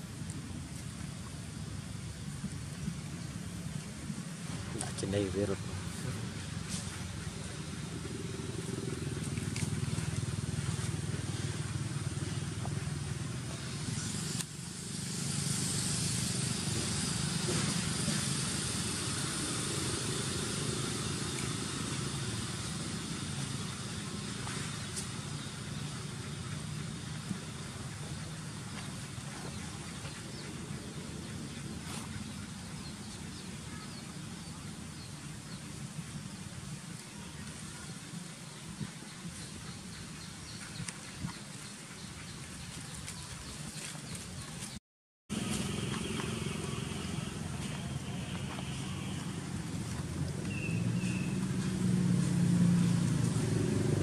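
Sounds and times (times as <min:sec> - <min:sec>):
vehicle engine humming: 0:00.0 - 0:54.0
high hiss: 0:12.9 - 0:29.2.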